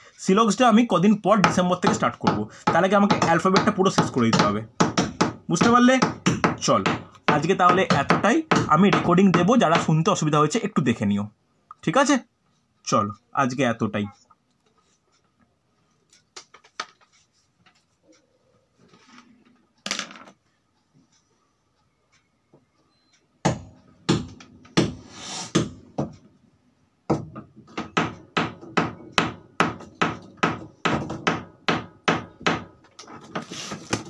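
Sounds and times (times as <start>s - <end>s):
hammering: 1.4s - 9.9s, 23.4s - 26.2s, 27.1s - 34.0s.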